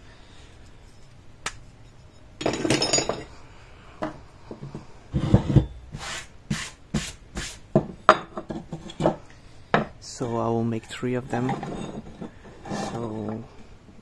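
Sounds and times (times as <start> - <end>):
metal parts clinking and knocking: 2.4 - 3.3.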